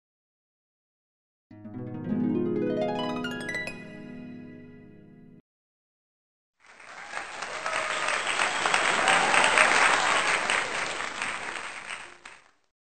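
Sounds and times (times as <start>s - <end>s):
crowd applause: 6.6s - 12.7s.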